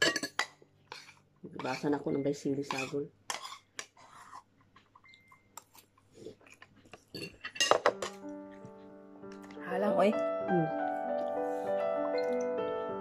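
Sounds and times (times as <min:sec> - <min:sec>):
dishes clattering: 0:00.0 - 0:03.9, 0:07.0 - 0:08.3
cutlery clinking on dishes: 0:00.0 - 0:04.0, 0:06.9 - 0:08.3
sustained music: 0:07.9 - 0:13.0.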